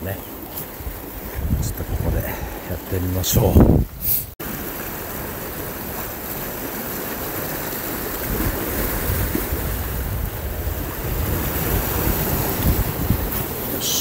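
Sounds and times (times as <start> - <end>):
surf washing against rocks: 0.0 - 14.0
wind on microphone: 0.7 - 4.4, 8.1 - 14.0.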